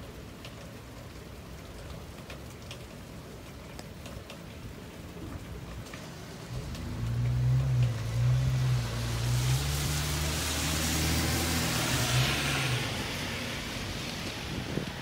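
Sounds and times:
tyres hissing on wet road: 5.2s - 15.0s
vehicle engine hum: 6.1s - 14.1s.

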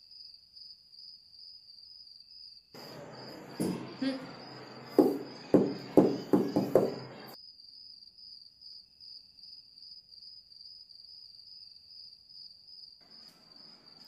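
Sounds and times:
cricket trilling: 0.1s - 7.4s, 10.3s - 14.0s
soft room noise hiss: 2.8s - 7.4s, 13.0s - 14.0s.

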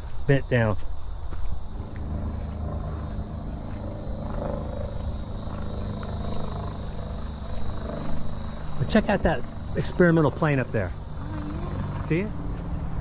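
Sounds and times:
insects buzzing: 0.0s - 13.0s
propeller plane droning overhead: 0.0s - 13.0s.

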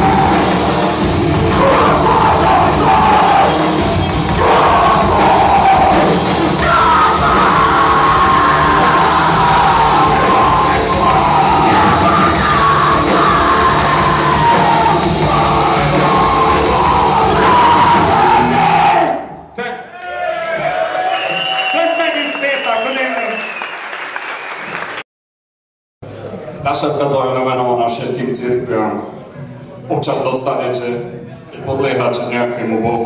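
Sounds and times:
heavy rock band playing: 0.0s - 19.0s
yelled vocals: 0.0s - 19.4s.

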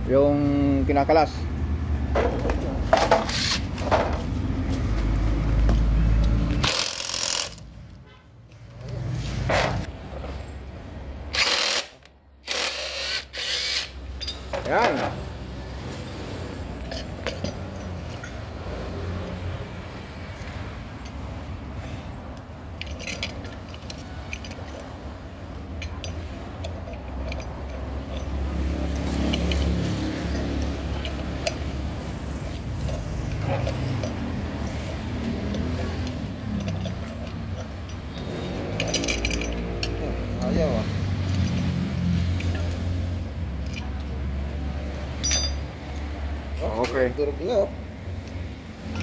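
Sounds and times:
impact wrench bursts: 3.2s - 3.8s, 6.6s - 7.7s, 11.3s - 14.5s
socket tool clinking on metal: 14.1s - 15.3s, 22.8s - 31.8s, 35.2s - 41.8s, 45.1s - 45.8s, 48.2s - 49.0s.

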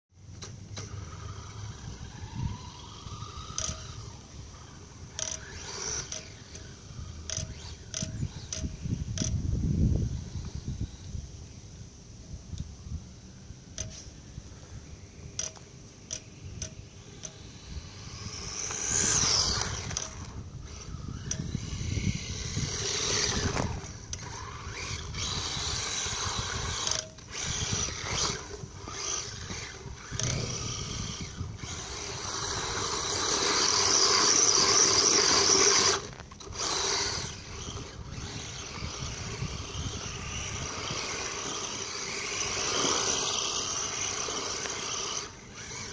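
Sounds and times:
electric motor whining: 0.7s - 11.2s, 13.8s - 45.9s
tyres churning through snow: 17.5s - 45.9s.

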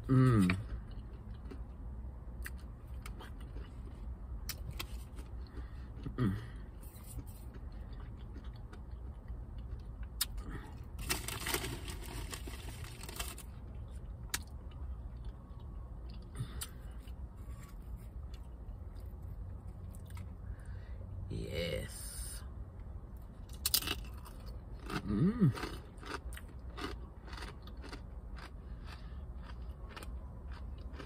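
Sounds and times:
low rumble inside car: 0.0s - 25.4s
plastic crinkling rustle: 11.0s - 13.5s.

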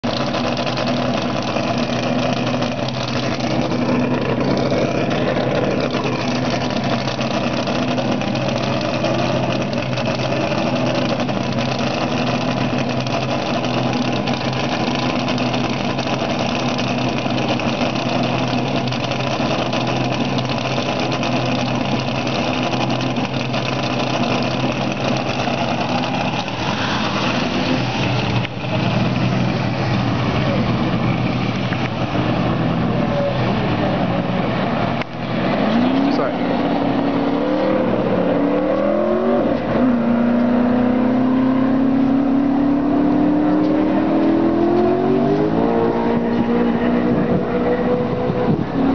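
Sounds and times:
vehicle engine idling: 0.0s - 37.2s.

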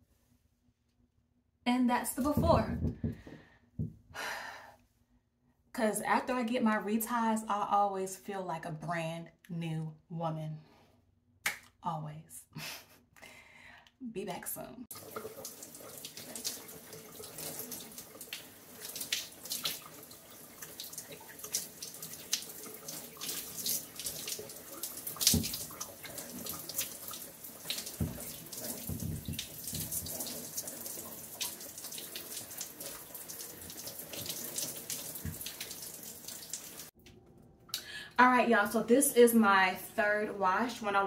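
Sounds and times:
water splash: 14.9s - 33.1s
shower water splattering: 14.9s - 37.0s.

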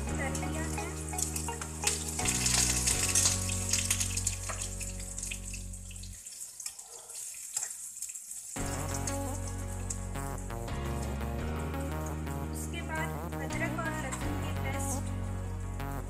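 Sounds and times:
background music: 0.0s - 6.1s, 8.6s - 16.0s
onions sizzling in oil: 0.0s - 10.2s.

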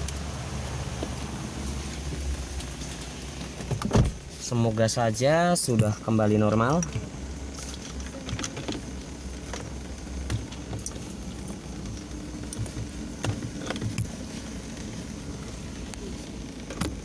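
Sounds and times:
car engine idling: 0.0s - 17.0s
light clicks and knocks: 5.6s - 14.9s.

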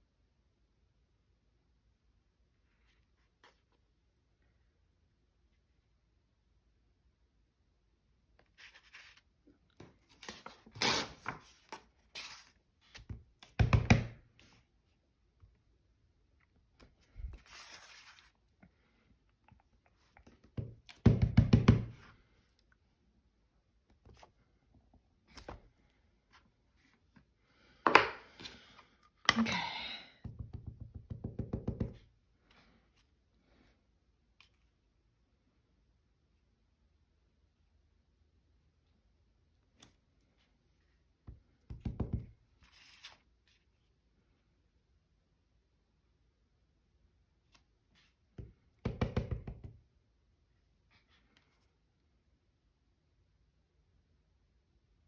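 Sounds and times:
paper rustling and scraping: 8.5s - 13.1s, 17.1s - 18.4s, 42.6s - 43.7s
rustling scrape: 17.3s - 18.4s.

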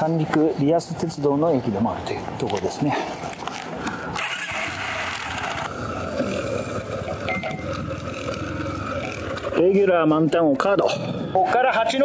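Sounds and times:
motorcycle engine running: 4.2s - 10.4s.

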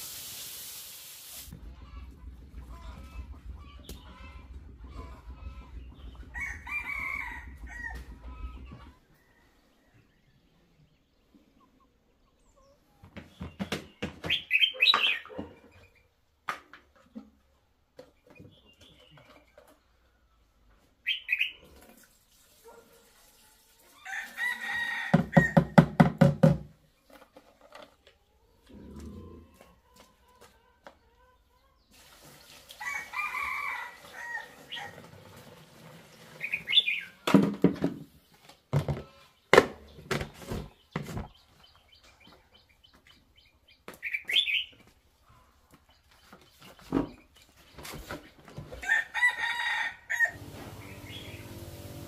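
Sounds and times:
chickens clucking: 1.5s - 21.9s, 26.9s - 31.9s, 32.8s - 52.0s
rooster crowing: 6.3s - 8.1s, 24.0s - 25.7s, 32.8s - 35.0s, 48.8s - 50.6s.

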